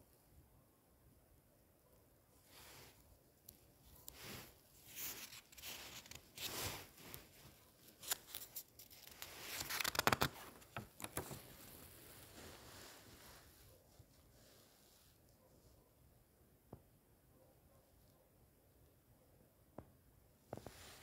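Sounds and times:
book pages rustling: 0:03.8 - 0:13.6.

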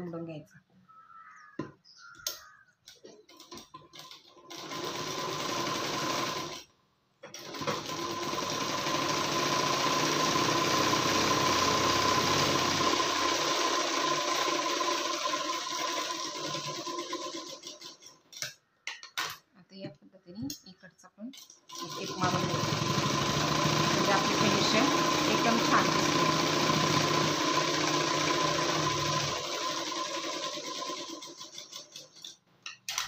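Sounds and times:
sewing machine stitching: 0:03.1 - 0:06.7, 0:07.3 - 0:18.2, 0:21.4 - 0:32.4.

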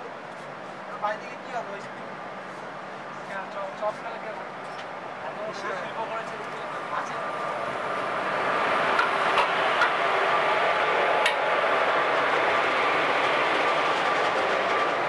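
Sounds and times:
train wheels on rails: 0:06.2 - 0:15.0.

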